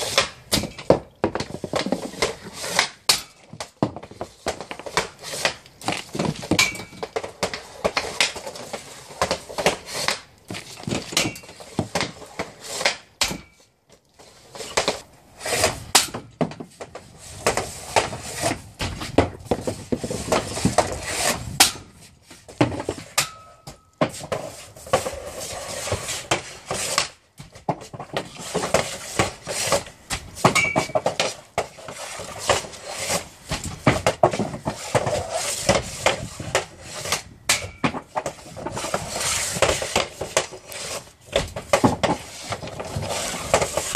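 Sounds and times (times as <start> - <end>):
stick blades scraping tiles: 0.0 - 13.6, 14.2 - 16.2, 16.8 - 23.4, 24.0 - 43.9
hockey sticks striking pucks: 0.0 - 13.7, 14.4 - 43.9
pucks clacking against boards: 0.0 - 43.9.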